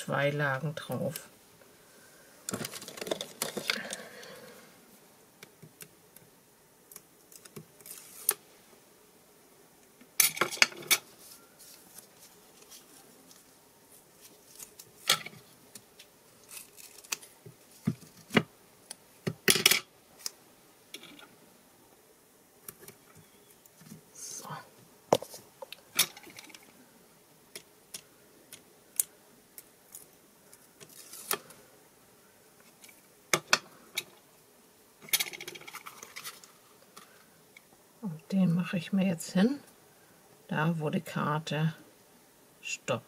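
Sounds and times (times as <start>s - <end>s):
sharp clicks and rustles: 2.5s - 4.0s
rustling scrape: 7.8s - 8.4s, 10.9s - 15.6s, 30.9s - 31.5s.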